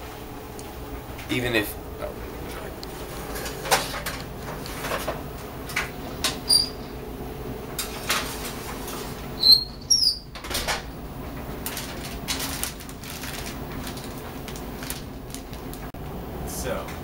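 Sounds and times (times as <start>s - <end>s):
oven door shutting: 2.5s - 7.0s, 7.6s - 12.4s
baking sheet squeaking on oven rack: 6.3s - 6.9s, 9.4s - 10.4s.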